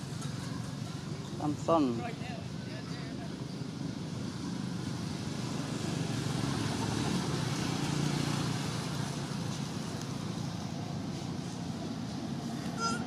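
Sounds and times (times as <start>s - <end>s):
low outdoor rumble: 8.5s - 13.0s.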